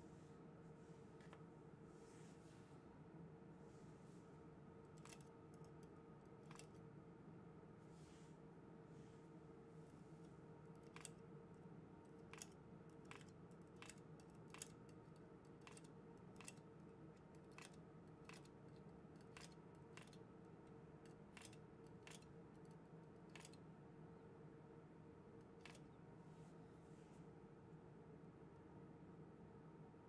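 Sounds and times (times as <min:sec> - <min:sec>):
faint metal clicks: 0:05.0 - 0:06.8, 0:10.7 - 0:11.2, 0:12.1 - 0:23.6, 0:25.5 - 0:26.0.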